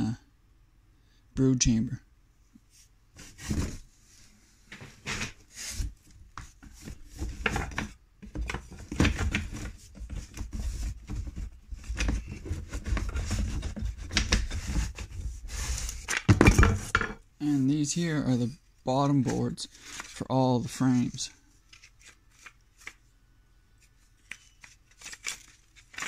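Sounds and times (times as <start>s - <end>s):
wooden pieces knocking and scraping: 6.4s - 15.1s, 15.9s - 17.2s.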